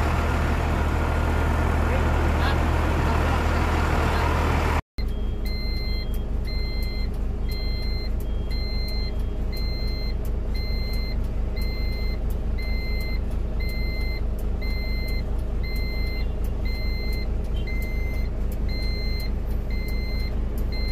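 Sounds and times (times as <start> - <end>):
low engine drone: 0.0 - 20.9
reversing alarm beeping: 5.0 - 20.9.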